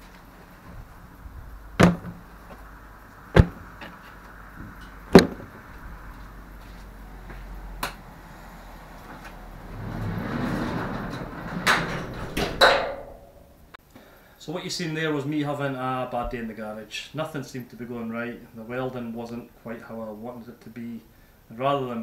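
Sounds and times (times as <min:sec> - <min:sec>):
sharp knocks: 0:01.8 - 0:02.2, 0:03.4 - 0:03.7, 0:05.1 - 0:05.6, 0:11.1 - 0:13.6
metal garage door rumbling: 0:09.2 - 0:13.8.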